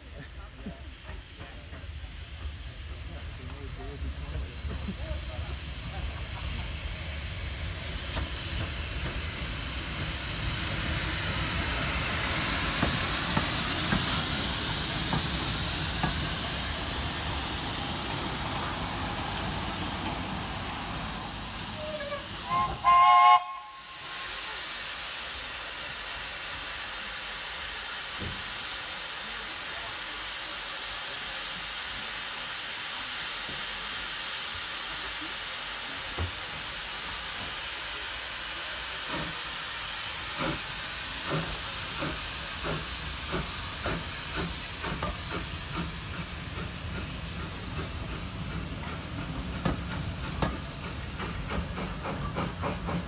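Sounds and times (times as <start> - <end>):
train rumble: 0.0 - 32.2, 34.5 - 53.0
steam engine hissing: 0.0 - 53.0
steam whistle blasts: 21.1 - 24.3.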